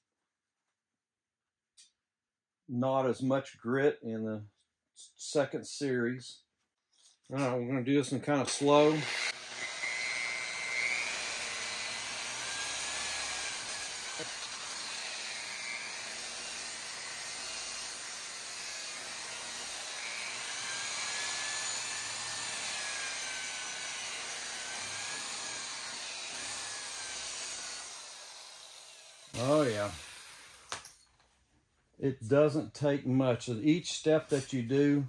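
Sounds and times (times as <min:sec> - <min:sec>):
rotary polisher motor whine: 0:08.9 - 0:30.8.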